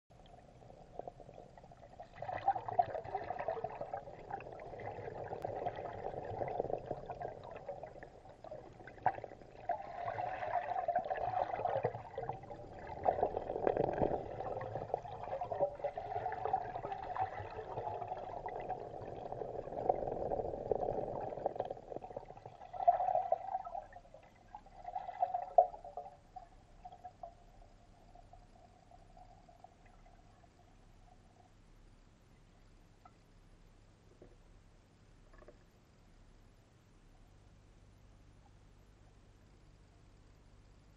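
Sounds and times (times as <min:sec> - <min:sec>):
muffled underwater churning water: 0:00.4 - 0:30.5
underwater clicks and knocks: 0:35.3 - 0:35.7.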